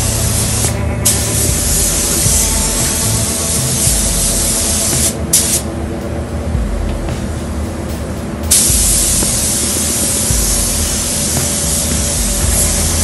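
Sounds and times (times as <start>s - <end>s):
paint spray gun hissing: 0.0s - 5.7s, 7.2s - 13.0s.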